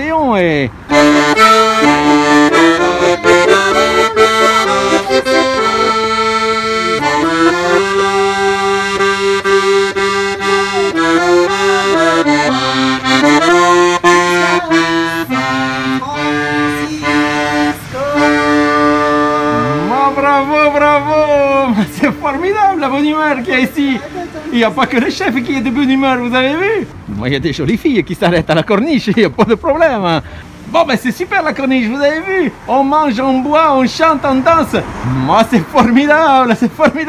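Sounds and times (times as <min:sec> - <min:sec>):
button accordion playing: 0:00.9 - 0:24.6.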